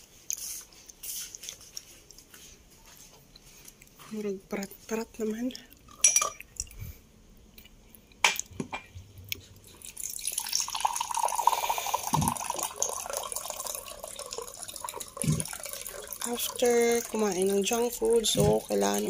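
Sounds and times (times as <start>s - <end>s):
water pouring into a glass: 9.8s - 19.0s.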